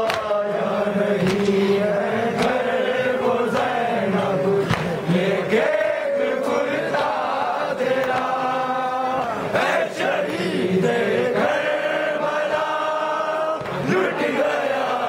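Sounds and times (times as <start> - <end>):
hands slapping chests: 0.0 - 0.4, 1.2 - 1.6, 2.3 - 2.7, 4.6 - 5.0, 8.0 - 8.4
men chanting a lament: 0.0 - 15.0.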